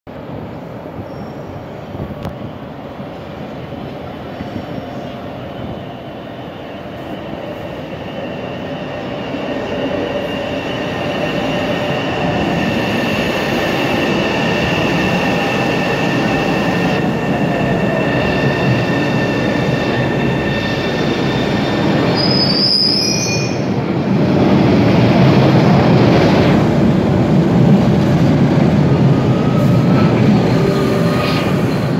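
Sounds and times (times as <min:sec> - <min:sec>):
subway train rumbling past: 0:00.1 - 0:31.9
train wheels squealing: 0:01.0 - 0:01.7, 0:04.4 - 0:23.8, 0:29.1 - 0:31.9.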